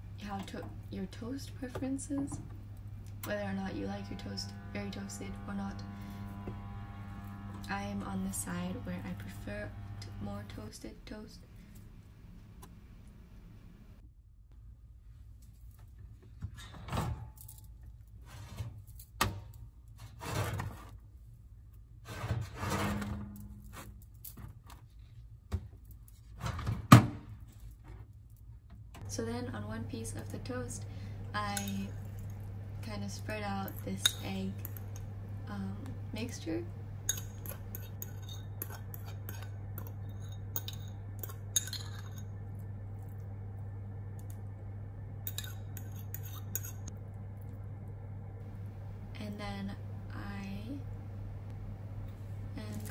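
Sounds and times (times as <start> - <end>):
fork scraping ceramic bowl: 37.0 - 42.3, 45.2 - 46.9.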